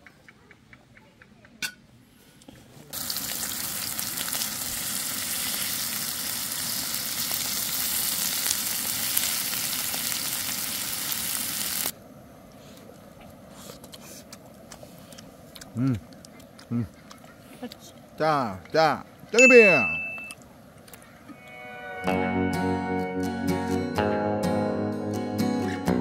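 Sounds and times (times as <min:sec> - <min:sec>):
meat sizzling on a griddle: 0:03.0 - 0:11.9.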